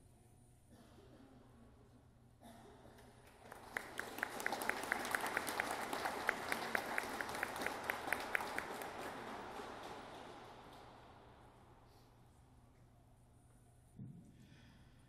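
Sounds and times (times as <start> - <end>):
person clapping close by: 3.2 - 11.2
audience applauding: 3.3 - 12.0.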